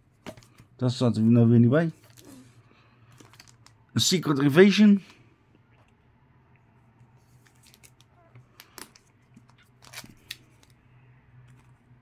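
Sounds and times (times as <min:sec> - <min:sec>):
soft rustles of plastic sleeves: 0:00.1 - 0:04.0, 0:06.8 - 0:12.0.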